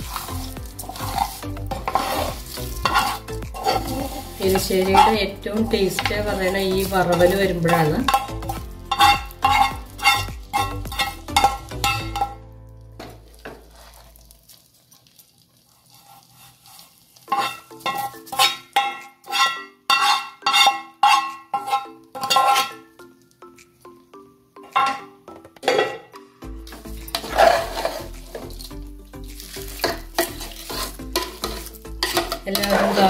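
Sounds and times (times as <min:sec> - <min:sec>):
metal utensil clinking on metal pan: 0:00.0 - 0:13.1, 0:17.3 - 0:23.0, 0:24.6 - 0:26.1, 0:26.7 - 0:28.8, 0:29.4 - 0:33.0.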